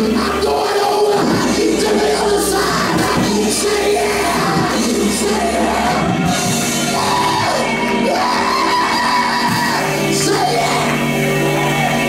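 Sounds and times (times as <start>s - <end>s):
man singing into a microphone: 0.0s - 6.1s, 8.2s - 11.0s
church music: 0.0s - 12.0s.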